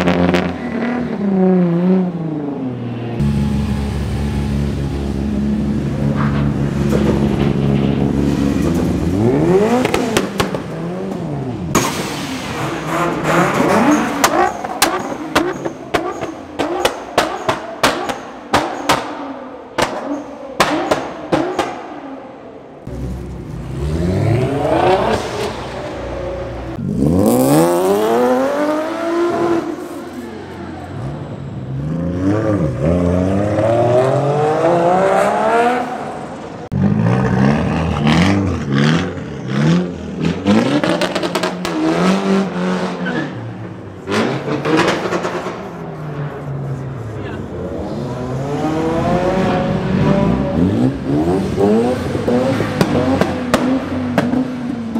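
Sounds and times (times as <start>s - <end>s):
car engines revving: 0.0s - 54.9s
exhaust pops and bangs: 9.8s - 10.7s, 11.7s - 19.2s, 52.7s - 54.5s.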